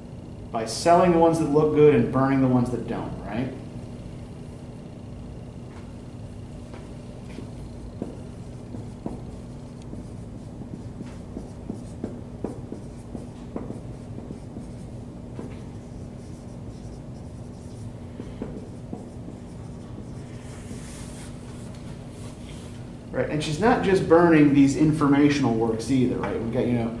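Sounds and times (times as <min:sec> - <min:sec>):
low steady hum: 0:00.0 - 0:27.0
marker scratching on whiteboard: 0:07.3 - 0:22.7.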